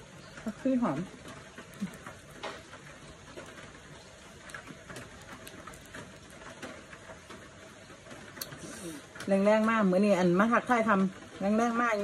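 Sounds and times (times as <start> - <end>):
steady rain: 0.0 - 12.0.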